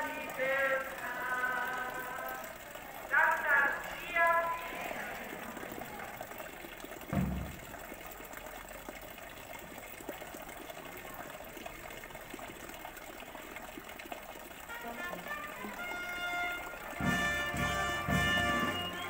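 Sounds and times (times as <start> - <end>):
crowd murmuring and shuffling: 1.2 - 6.7, 14.9 - 19.0
low thump: 7.1 - 7.8.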